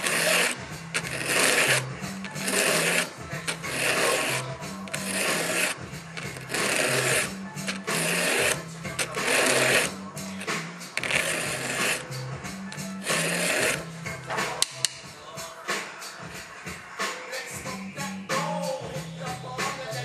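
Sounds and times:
hand file rasping on chainsaw chain: 0.0s - 13.9s.

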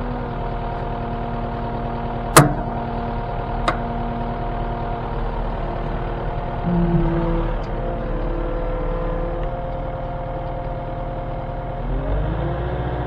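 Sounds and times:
diesel loader engine and hydraulics: 0.0s - 13.0s.

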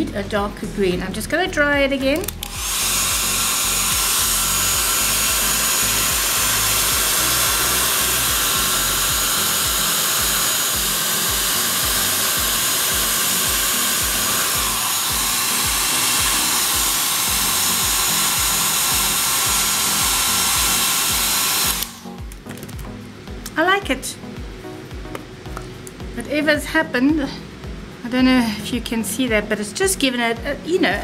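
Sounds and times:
heat tool fan hiss: 2.2s - 22.2s
high motor whine: 2.3s - 22.4s.

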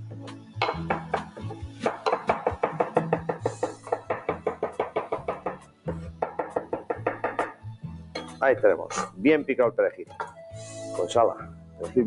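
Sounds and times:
background music: 0.0s - 12.0s
knife chopping on wooden board: 0.6s - 7.6s.

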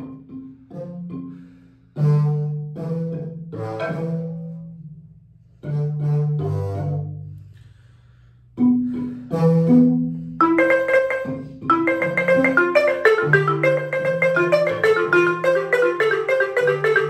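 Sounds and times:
marimba notes: 0.0s - 7.3s, 8.6s - 17.0s.

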